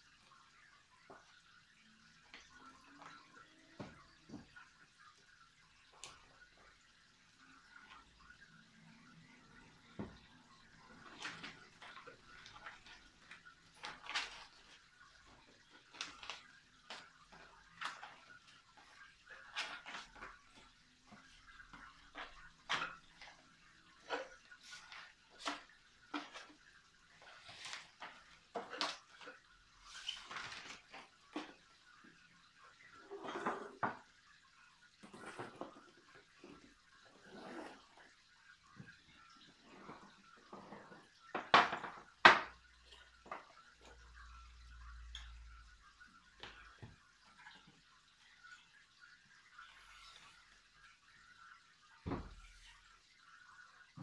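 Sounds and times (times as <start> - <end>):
plastic sleeves rustling and crinkling: 10.9 - 23.4, 24.0 - 31.6.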